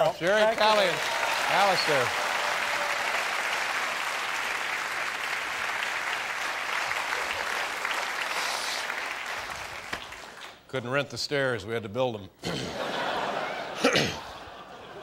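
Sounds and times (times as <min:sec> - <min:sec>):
audience applauding: 0:00.2 - 0:10.6.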